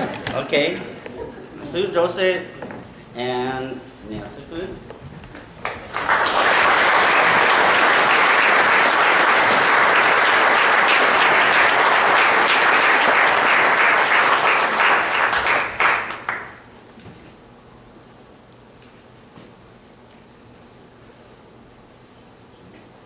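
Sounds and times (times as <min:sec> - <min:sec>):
congregation applauding: 0:05.4 - 0:16.7.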